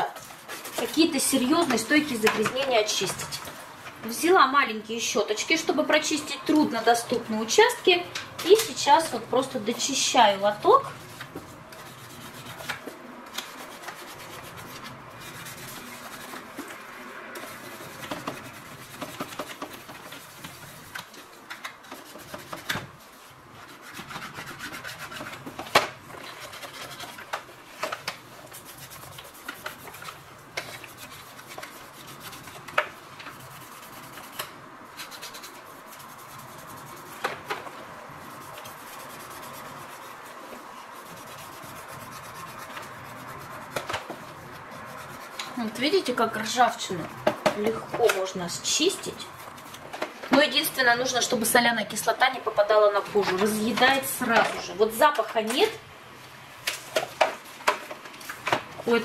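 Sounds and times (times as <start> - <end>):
brush scrubbing plastic: 0.0 - 4.4, 5.9 - 55.5.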